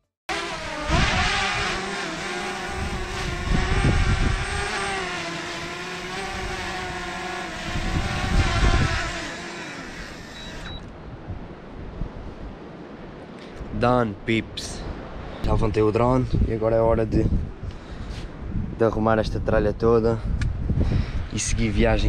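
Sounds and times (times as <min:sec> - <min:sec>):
drone motor whine: 0:00.3 - 0:10.9
wind on microphone: 0:00.3 - 0:12.9, 0:14.7 - 0:22.0.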